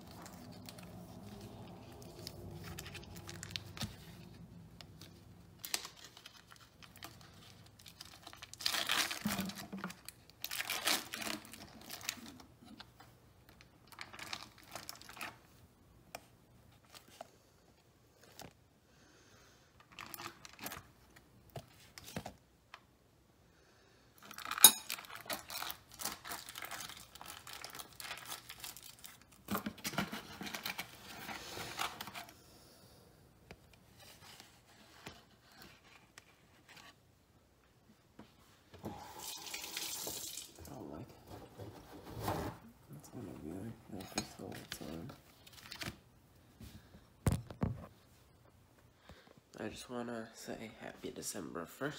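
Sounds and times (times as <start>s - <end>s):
foil wrapper crinkling: 0.0s - 12.4s, 13.5s - 15.5s, 19.9s - 20.9s, 24.2s - 32.3s.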